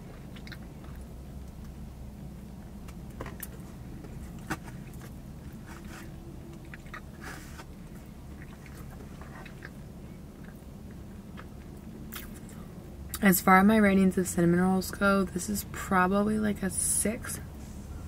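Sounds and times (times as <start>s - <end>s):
person chewing soft pastry: 0.0s - 12.8s
steady low hum: 0.0s - 18.0s.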